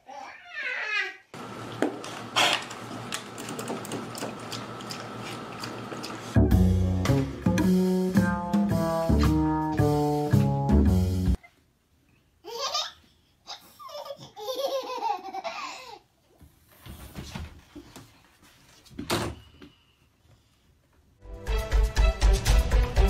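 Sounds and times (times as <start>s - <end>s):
toddler laughing: 12.4s - 16.0s.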